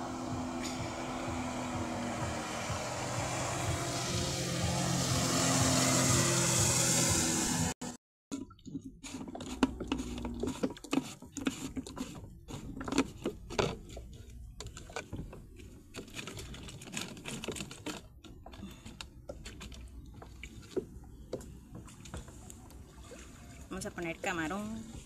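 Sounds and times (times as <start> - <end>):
hands handling fishing gear: 8.3 - 23.4.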